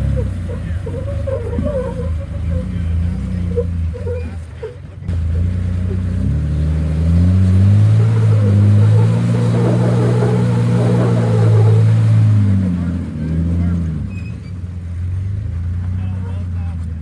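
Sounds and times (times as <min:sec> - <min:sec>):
engine revving hard: 0:00.0 - 0:03.7, 0:05.5 - 0:14.1
tyres scrabbling on rock: 0:08.1 - 0:12.1.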